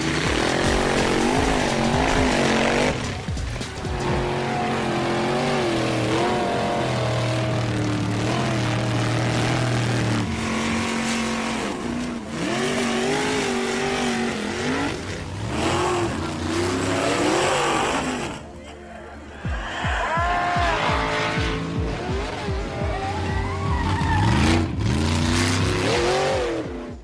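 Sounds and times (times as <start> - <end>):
race car engine revving: 0.0 - 18.6, 19.6 - 27.0
music playing: 0.0 - 27.0.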